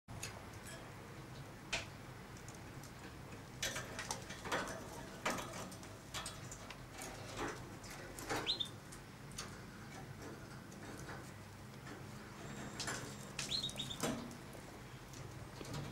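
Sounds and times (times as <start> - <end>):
bird chirp: 8.4 - 8.8, 13.1 - 14.1.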